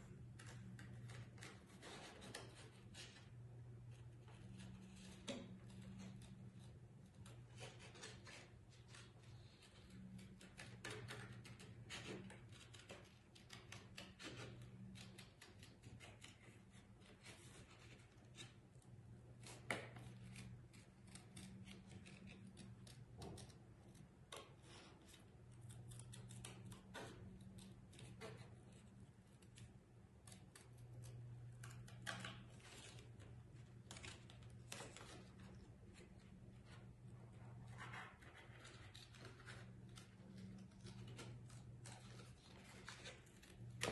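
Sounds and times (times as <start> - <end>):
scissors snipping cardboard: 10.0 - 18.6, 19.4 - 23.6, 24.3 - 28.8.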